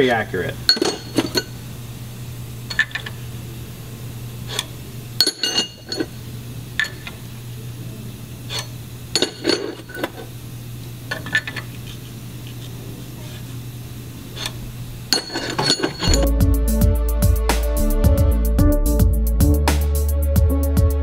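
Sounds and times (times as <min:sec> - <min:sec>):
steady low hum: 0:00.0 - 0:19.6
metal rods clinking: 0:00.7 - 0:01.6, 0:02.7 - 0:03.2, 0:04.5 - 0:06.2, 0:06.8 - 0:07.2, 0:08.5 - 0:10.2, 0:11.1 - 0:11.7, 0:14.4 - 0:16.3.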